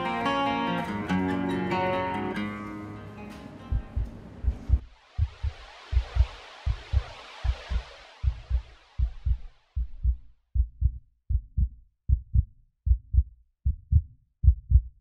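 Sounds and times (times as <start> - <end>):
heartbeat thumps: 3.7 - 15.0.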